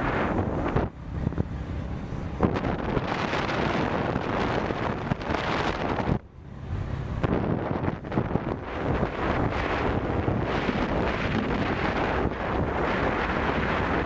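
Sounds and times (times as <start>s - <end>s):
vehicle engine running low: 0.0s - 14.0s
wind buffeting microphone: 0.0s - 14.0s.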